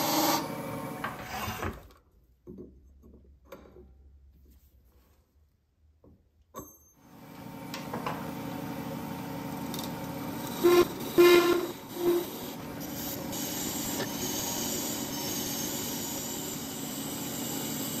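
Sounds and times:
wood lathe running: 0.0 - 1.1, 8.6 - 18.0
tool scraping metal: 10.4 - 16.7
tool squealing on metal: 10.5 - 16.2.

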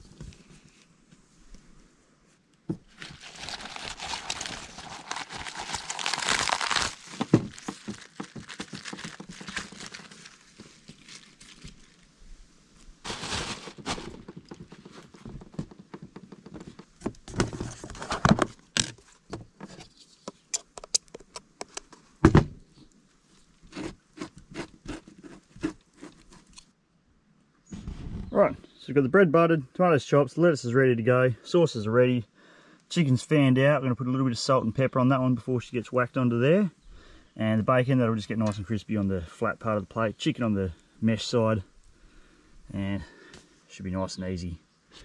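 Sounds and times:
plastic packaging crinkling: 2.9 - 12.1, 13.0 - 15.4.

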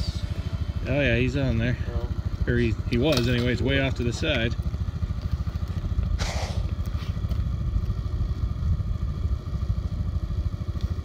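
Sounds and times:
atv engine idling: 0.0 - 11.0.

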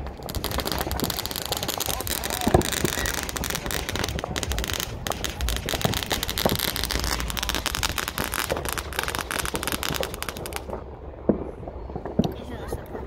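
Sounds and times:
fireworks crackling and popping: 0.0 - 13.0.

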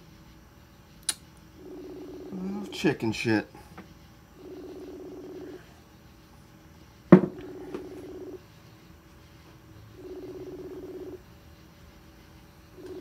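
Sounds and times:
pulsing phone ringing tone: 1.6 - 3.1, 4.4 - 5.8, 7.4 - 8.5, 9.9 - 11.2, 12.8 - 13.0.

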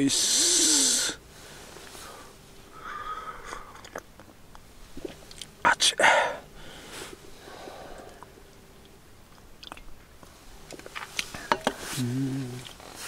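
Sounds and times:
person sipping: 3.4 - 4.0, 5.0 - 5.5, 6.9 - 8.3, 9.6 - 9.9, 10.7 - 13.0
lip smacks and clicks: 8.0 - 9.9
closed-mouth hmm: 11.9 - 12.8.

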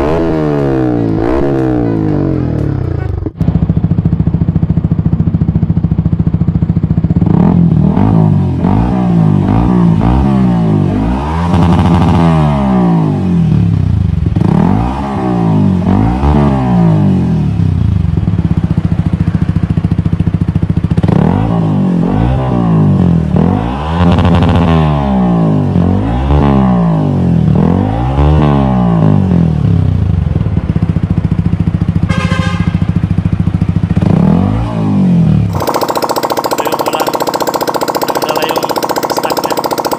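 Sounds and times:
motorcycle engine revving: 0.0 - 39.9
motorcycle engine idling: 2.0 - 7.3, 17.8 - 21.0, 35.5 - 39.9.

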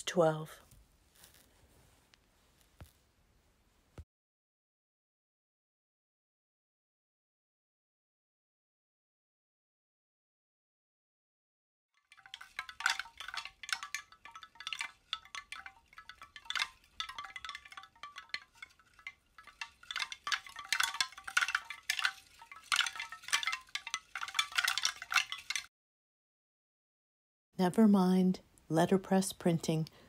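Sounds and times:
chimes tinkling: 12.1 - 25.7.

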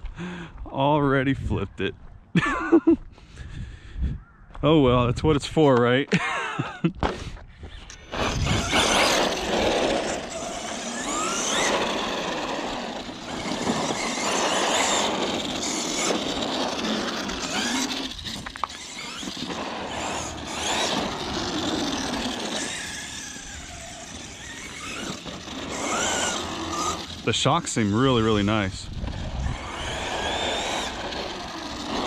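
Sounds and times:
electric motor whining: 7.7 - 32.0
rough rushing noise: 8.1 - 32.0.

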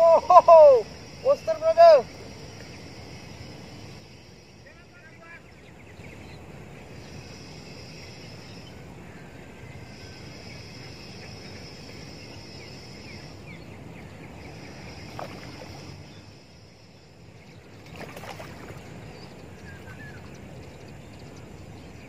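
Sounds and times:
water sloshing and splashing: 14.7 - 16.2, 17.7 - 20.6.

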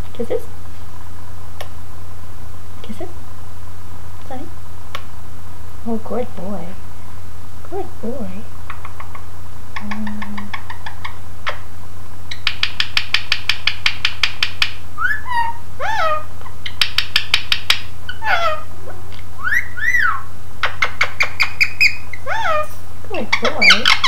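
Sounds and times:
parakeet kissing smacks: 8.7 - 10.8
parakeet whistled chirps: 15.0 - 16.2, 19.4 - 22.8.

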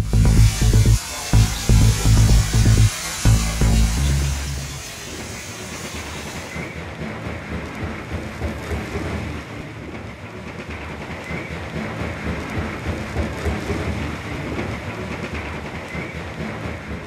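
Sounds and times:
machinery clattering rumble: 0.0 - 5.0
machinery hiss: 0.0 - 6.8.

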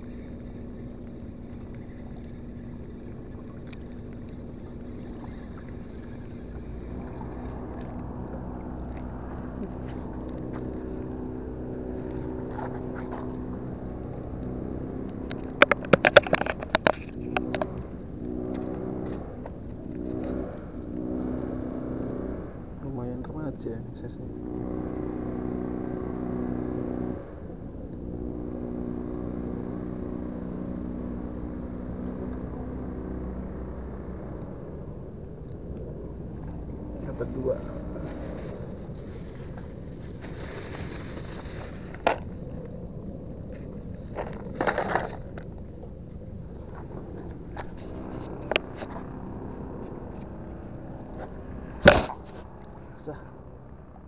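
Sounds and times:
boat engine droning: 0.0 - 54.0.

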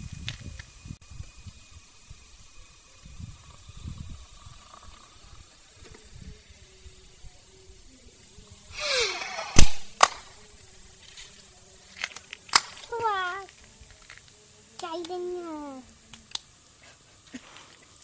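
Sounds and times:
short hissing rush: 0.8 - 11.3
mixture fizzing: 2.4 - 5.8
sharp clicks: 16.1 - 16.5.

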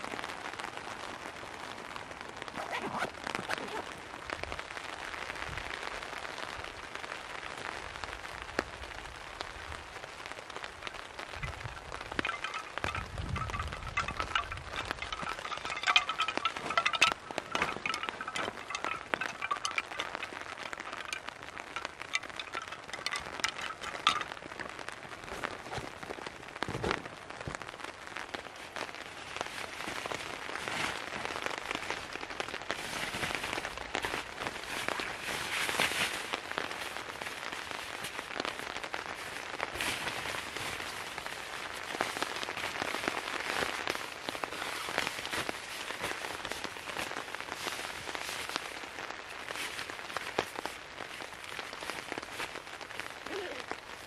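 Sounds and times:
dense crackle of small ticks: 0.0 - 54.0
bamboo wind chimes knocking: 11.2 - 26.2.

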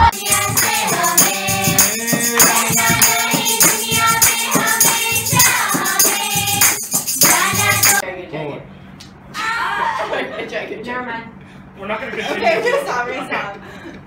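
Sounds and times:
girls singing together: 0.0 - 8.0
tambourine beat: 0.0 - 8.0
hand clapping: 0.2 - 8.0.

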